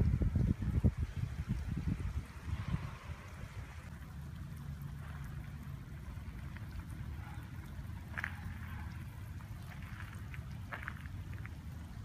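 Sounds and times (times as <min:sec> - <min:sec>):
light rain dripping on gravel: 0:00.0 - 0:12.0
steady low rumble: 0:00.0 - 0:12.0.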